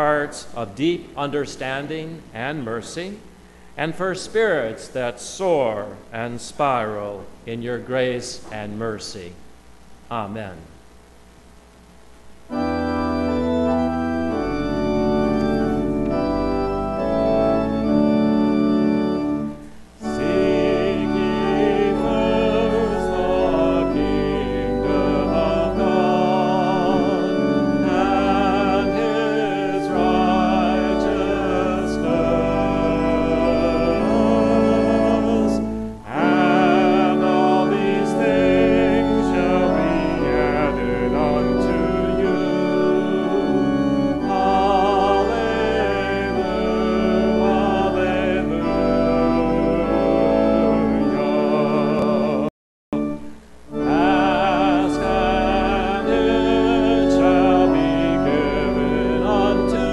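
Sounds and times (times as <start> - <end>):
church organ playing a hymn: 0.0 - 9.3, 12.5 - 59.9.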